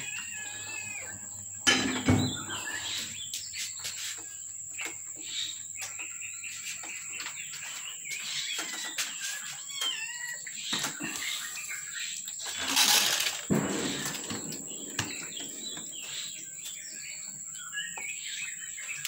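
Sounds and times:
loud knock: 13.5 - 16.4
faint chirps: 13.5 - 19.0.

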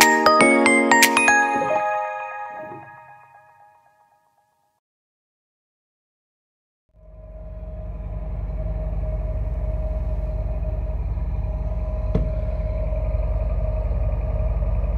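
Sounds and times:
machinery hum: 7.0 - 14.9
ship engine low drone: 7.0 - 14.9.

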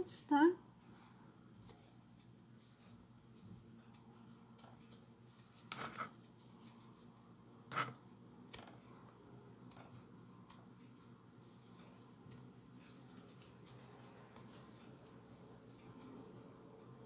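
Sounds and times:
faint steady hum: 0.0 - 17.0
cloth rustling and rubbing: 1.6 - 8.1.

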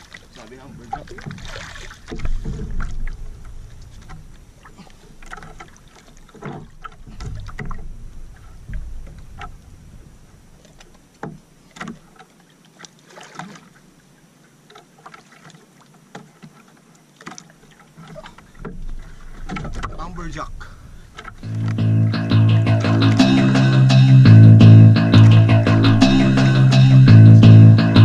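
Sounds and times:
water splashing against hull: 0.0 - 27.8
low wind rumble on microphone: 0.6 - 5.2, 7.0 - 10.8, 18.5 - 22.2
knocks and clicks: 18.6 - 28.0.

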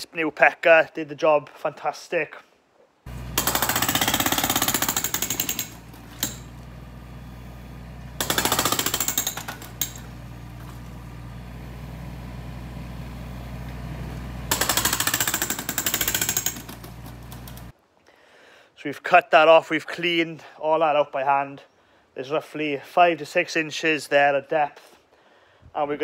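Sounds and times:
hydraulic breaker hammering concrete: 3.1 - 6.7, 8.0 - 11.0, 14.5 - 17.7
digger engine running: 3.1 - 17.7.

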